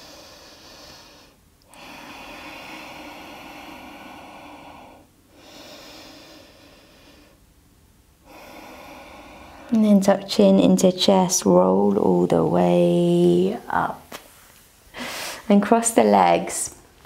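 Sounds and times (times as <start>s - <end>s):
person breathing deeply: 0.0s - 7.5s, 8.2s - 9.8s, 14.9s - 15.5s.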